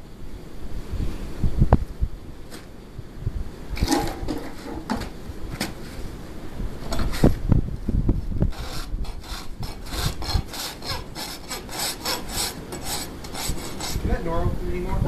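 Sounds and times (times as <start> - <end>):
rasp scraping hoof: 3.8 - 5.1, 8.5 - 14.1.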